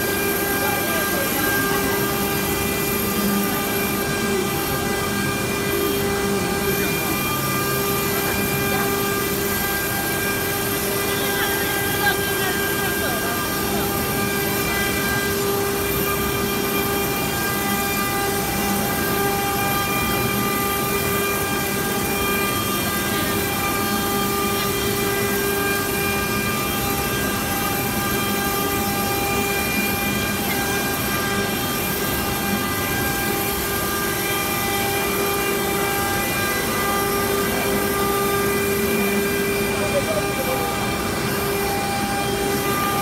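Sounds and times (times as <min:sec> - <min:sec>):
router spindle whining: 0:00.0 - 0:43.0.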